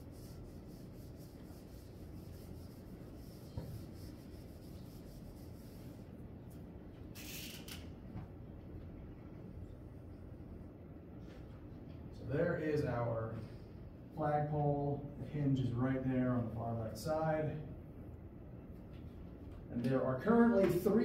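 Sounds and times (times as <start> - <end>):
marker strokes on whiteboard: 0.0 - 6.1.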